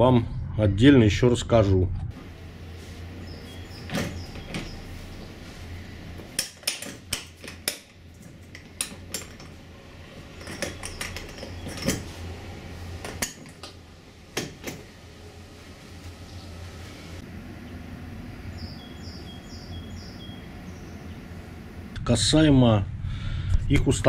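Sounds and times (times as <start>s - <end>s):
metal parts clinking: 6.4s - 12.3s, 13.0s - 13.7s.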